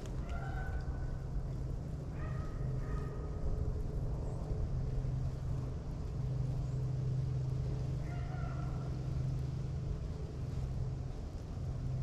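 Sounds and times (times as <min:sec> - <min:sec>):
steady low rumble: 0:00.0 - 0:12.0
distant dogs baying: 0:00.1 - 0:01.1, 0:02.0 - 0:03.4, 0:08.0 - 0:09.1.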